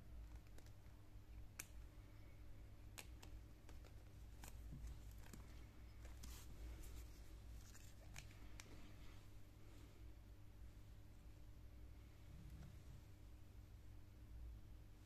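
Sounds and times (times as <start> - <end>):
light rustling of plastic film: 3.0 - 9.2.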